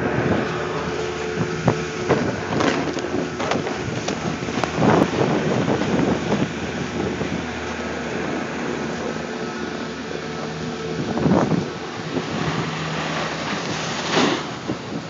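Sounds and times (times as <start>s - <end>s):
wind noise on microphone: 0.0s - 15.0s
snowboard scraping snow: 13.0s - 14.6s.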